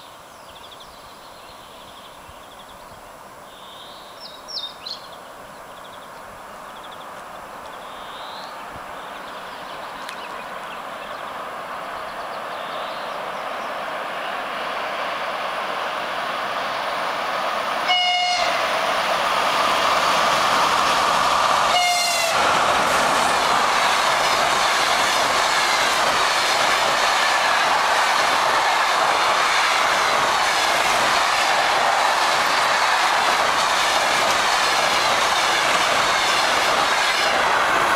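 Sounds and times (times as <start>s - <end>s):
train passing at speed: 0.0s - 37.9s
train horn blasts: 17.8s - 18.7s, 21.7s - 22.4s
wheels clickety-clack: 22.5s - 37.9s.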